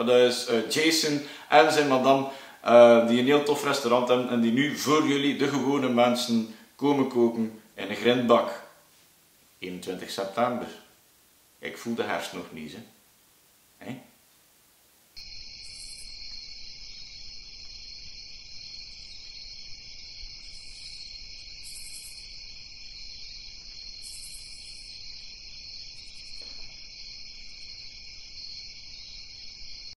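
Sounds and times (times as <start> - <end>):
crickets trilling: 0.0 - 8.7, 15.1 - 30.0
high chirping bursts: 15.2 - 17.8, 18.4 - 26.6.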